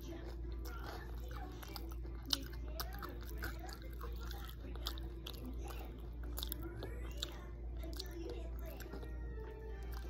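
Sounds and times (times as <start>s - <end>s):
person chewing crunchy food: 0.0s - 10.0s
steady low hum: 0.0s - 10.0s.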